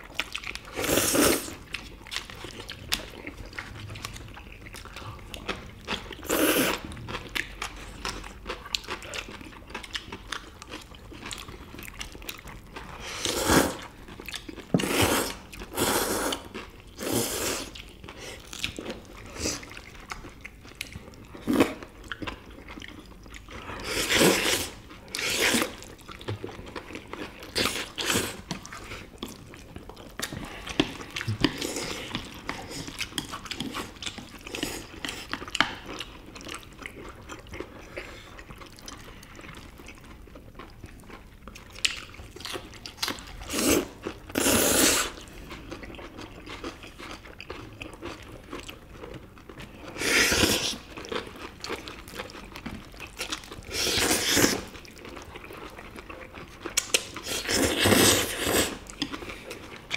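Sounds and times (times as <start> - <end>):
chewing: 0.0 - 59.9
people slurping noodles: 53.7 - 54.7, 57.2 - 58.8.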